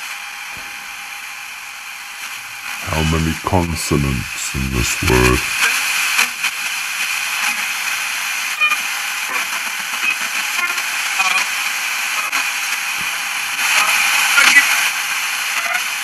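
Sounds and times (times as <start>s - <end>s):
radio static hiss: 2.2s - 16.0s
radio station snatches: 2.8s - 5.6s.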